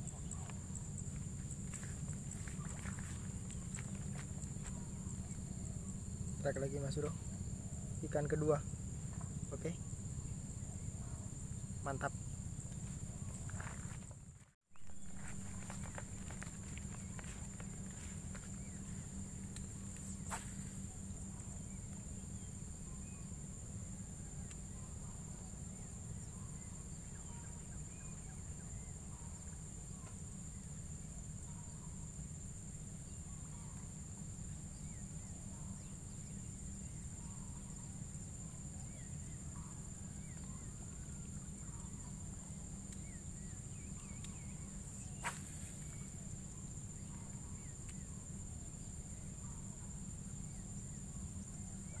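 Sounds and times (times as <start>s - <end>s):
low outdoor rumble: 0.0s - 26.9s
faint chirps: 0.0s - 52.0s
insects droning: 0.0s - 52.0s.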